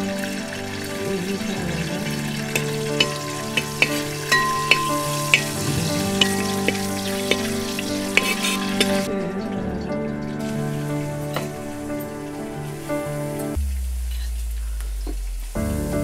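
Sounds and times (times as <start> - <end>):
food sizzling in a pot: 0.0 - 9.1, 10.2 - 16.0
metal ladle scraping a pot: 2.4 - 9.1.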